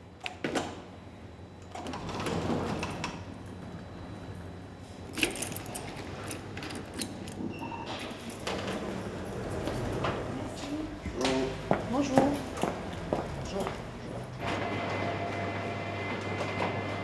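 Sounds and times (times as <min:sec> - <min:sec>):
steady low hum: 0:00.0 - 0:16.2
metallic clinking and jangling: 0:05.1 - 0:07.4.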